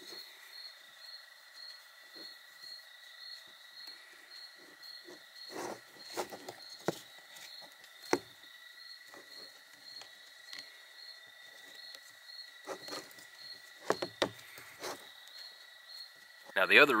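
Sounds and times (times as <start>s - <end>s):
insects trilling: 0.0s - 17.0s
strap rustling: 11.4s - 15.5s.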